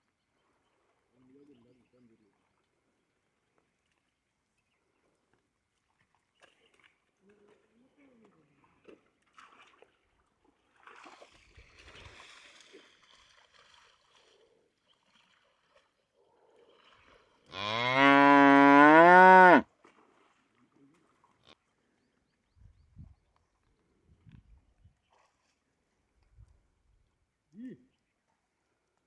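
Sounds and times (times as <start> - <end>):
water buffalo mooing: 17.5 - 19.6.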